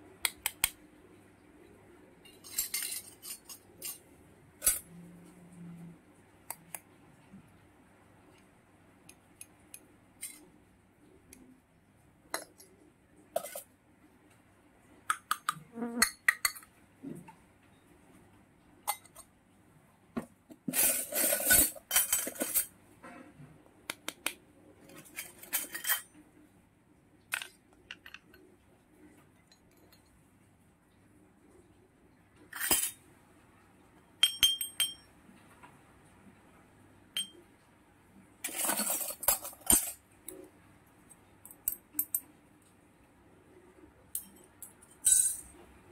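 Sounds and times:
toy metal pots clinking: 0:02.3 - 0:04.0, 0:20.7 - 0:22.7, 0:38.5 - 0:40.0, 0:44.2 - 0:45.5.

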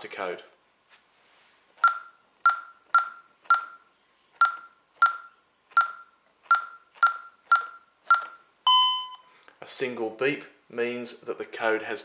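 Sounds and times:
keypad beeps: 0:01.8 - 0:09.3.

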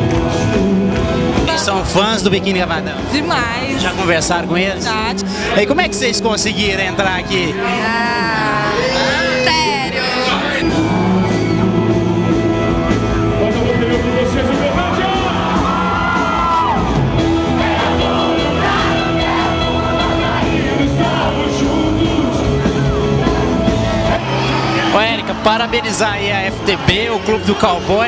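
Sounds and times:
live rock band: 0:00.0 - 0:06.0, 0:06.8 - 0:28.0
person singing lead vocal: 0:07.5 - 0:12.8, 0:17.6 - 0:24.2.

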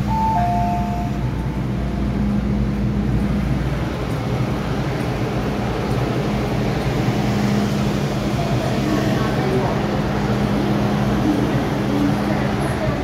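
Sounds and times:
train hum and rumble: 0:00.0 - 0:13.0
two-note electronic chime: 0:00.1 - 0:01.4.

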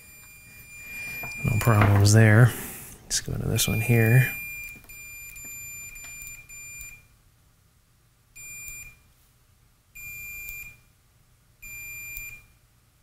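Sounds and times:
multimeter continuity beeping: 0:00.0 - 0:02.4, 0:03.4 - 0:07.1, 0:08.4 - 0:09.1, 0:10.0 - 0:10.9, 0:11.6 - 0:12.6.

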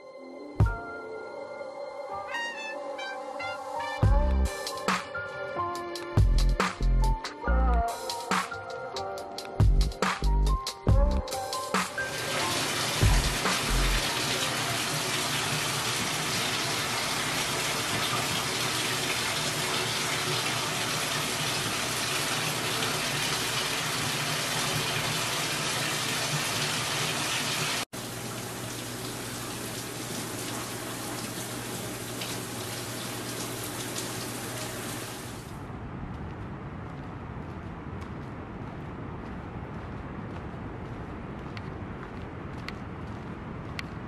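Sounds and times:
shower water spray hissing: 0:11.9 - 0:35.5.

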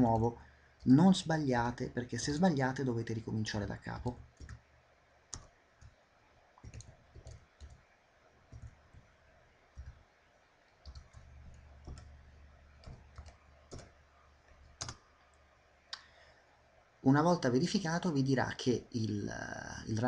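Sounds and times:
computer keyboard keystrokes: 0:04.4 - 0:04.6, 0:05.3 - 0:05.9, 0:06.6 - 0:07.8, 0:08.5 - 0:09.1, 0:09.8 - 0:10.0, 0:10.8 - 0:12.2, 0:12.8 - 0:14.0, 0:14.7 - 0:15.0.

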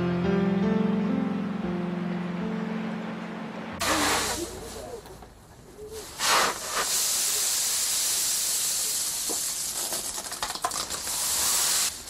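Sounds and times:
coffee beans rattling and hissing: 0:03.8 - 0:05.0, 0:05.8 - 0:12.0
wooden shovel scraping: 0:03.8 - 0:05.2, 0:05.8 - 0:06.9.

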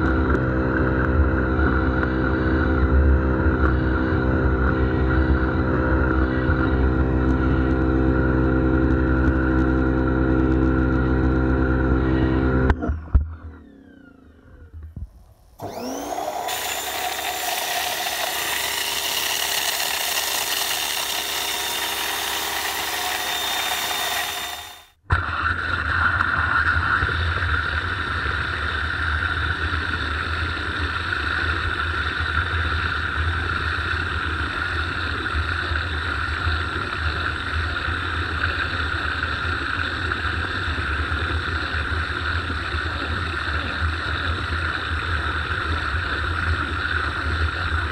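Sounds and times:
pressure washer motor whine: 0:00.0 - 0:25.4
rotating brush on car: 0:15.6 - 0:24.9.

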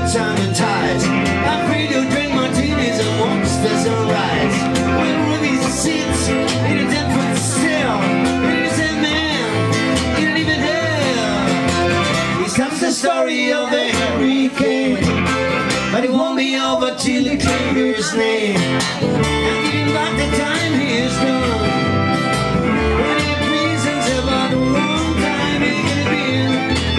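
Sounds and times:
accordion: 0:00.0 - 0:26.9
electric guitar: 0:00.0 - 0:26.9
strummed acoustic guitar: 0:00.0 - 0:26.9.

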